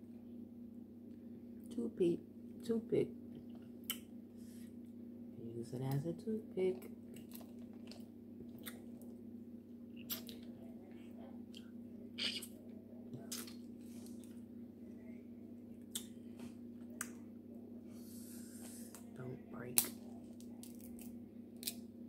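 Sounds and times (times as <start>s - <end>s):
steady low hum: 0.0s - 22.0s
wet squishing and chewing: 6.8s - 9.2s, 9.9s - 10.6s, 13.2s - 14.4s, 15.8s - 17.2s, 19.8s - 21.8s
crab shell cracking: 19.8s - 21.8s.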